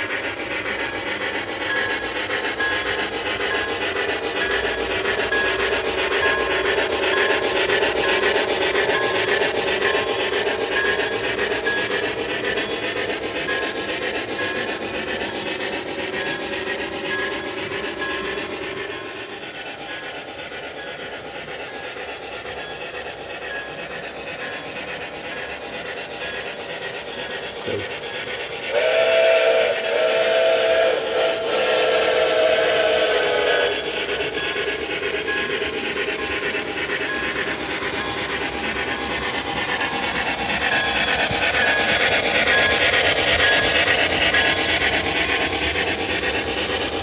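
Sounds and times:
steam train running: 0.0 - 47.0
steam whistle blasts: 28.7 - 33.9.

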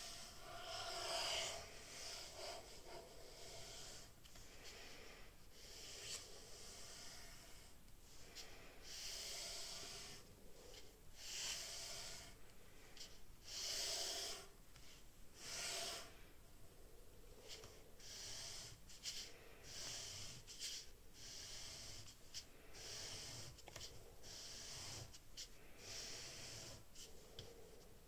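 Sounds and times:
pen scratching on paper: 17.6 - 27.2.

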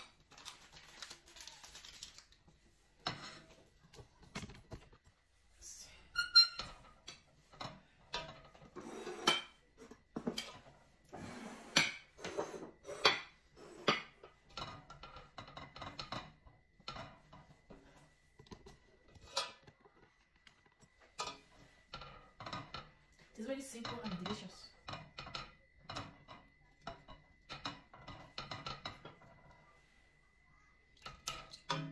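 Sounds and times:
spatula scraping metal pot: 2.7 - 3.7, 6.1 - 18.0.

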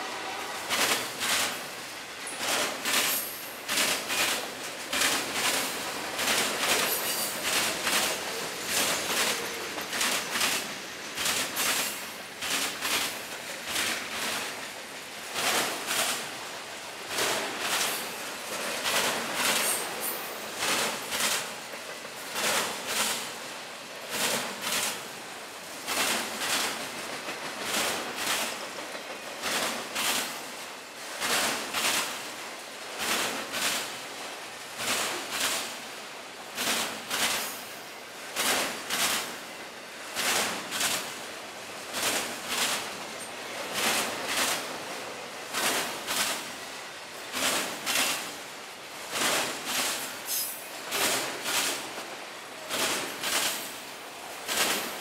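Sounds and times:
train wheels clicking over rail joint: 0.6 - 23.4, 24.1 - 30.5, 49.2 - 55.0.

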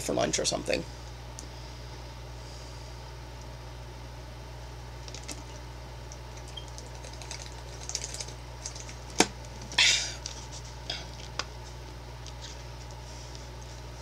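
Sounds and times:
plastic bottle crackling: 6.4 - 10.4.

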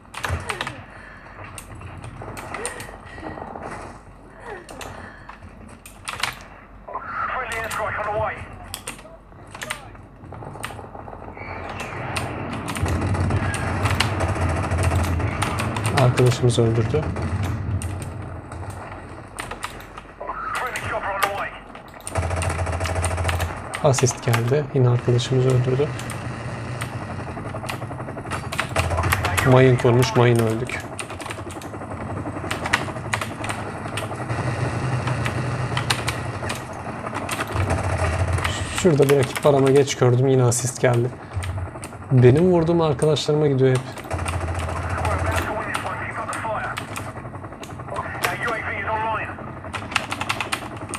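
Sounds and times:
low drone: 0.0 - 7.0, 8.4 - 50.9
low hum: 0.0 - 50.9
sharp clicks: 7.5 - 7.9, 8.7 - 16.3, 17.2 - 24.6, 25.5 - 31.8, 43.8 - 48.6
keyboard keys clicking: 49.7 - 50.9.

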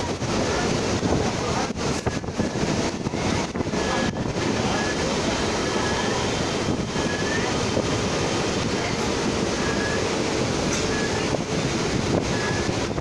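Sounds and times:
electric train running: 0.0 - 13.0
high wheel squeaks: 8.8 - 11.4, 12.2 - 13.0.

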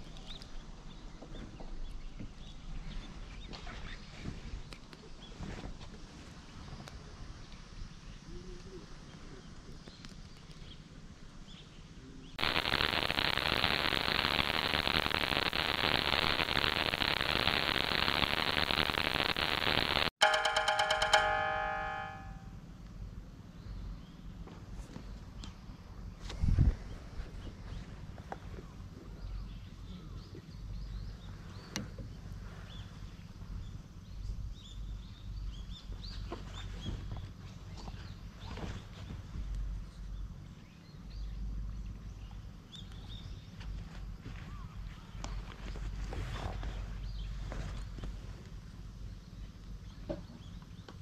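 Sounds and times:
rain falling: 12.4 - 20.1
loud static hiss with crackle: 12.4 - 22.3.

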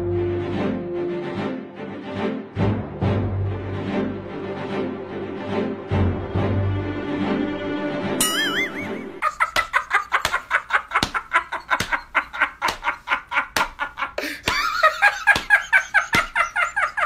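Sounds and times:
men laughing heartily: 8.4 - 17.0
sharp hand clap: 9.5 - 16.4.

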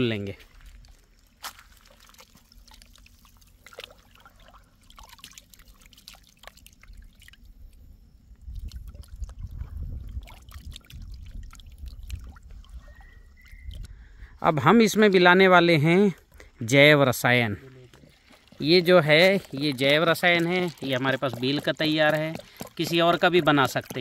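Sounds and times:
water trickling and dripping: 0.0 - 14.0, 14.8 - 24.0
hands squeezing wet mash: 0.3 - 7.4, 8.5 - 13.9, 17.7 - 24.0.

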